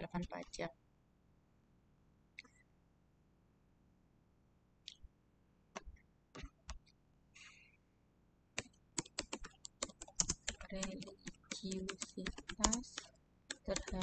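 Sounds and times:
computer mouse clicks: 8.6s - 14.0s
typing on keyboard: 8.6s - 14.0s.

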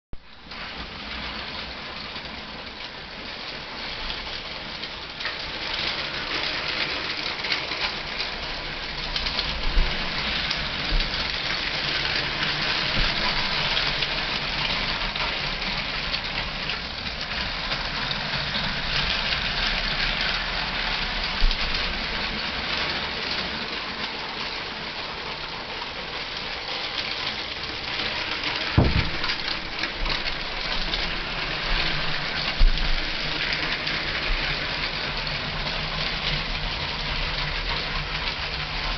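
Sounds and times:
wheels rattling over plastic track: 0.4s - 38.9s
toy train motors whirring: 0.5s - 38.9s
short knocks: 28.8s - 29.4s.

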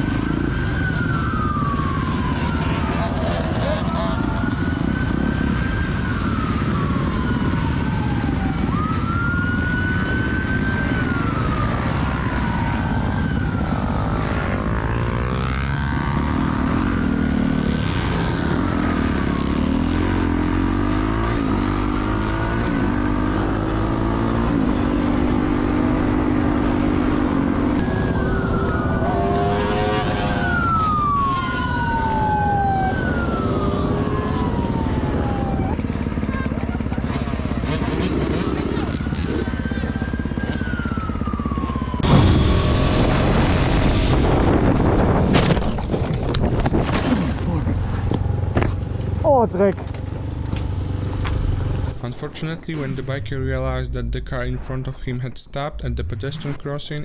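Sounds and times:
siren wailing: 0.0s - 47.1s
motorcycle engine revving: 8.8s - 52.0s
wind rush: 42.2s - 46.8s.

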